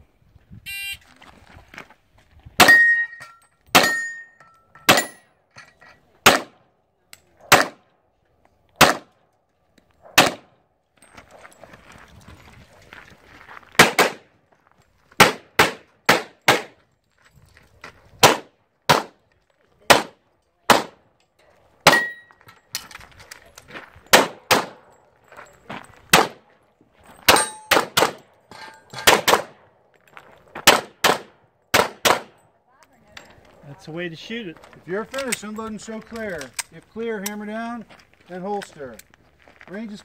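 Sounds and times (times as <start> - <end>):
steel targets clanging: 2.6 - 6.1, 21.8 - 22.9, 27.2 - 29.3
rapid pistol shots: 6.2 - 6.6, 7.5 - 7.8, 8.8 - 9.1, 10.2 - 10.5, 13.8 - 14.2, 15.2 - 16.8, 18.2 - 19.1, 19.9 - 21.0, 24.1 - 24.8, 27.3 - 28.2, 29.1 - 29.6, 30.7 - 32.4.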